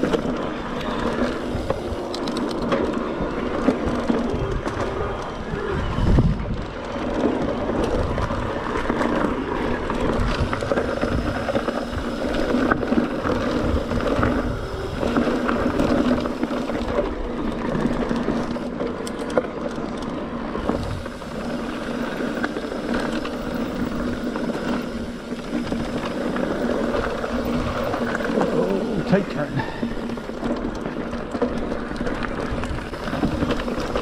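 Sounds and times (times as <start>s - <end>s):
bike knocking and rattling: 0.0s - 34.0s
bike tyres rumbling on dirt: 0.0s - 34.0s
wind on microphone: 3.7s - 9.0s, 9.8s - 17.0s, 20.6s - 21.8s.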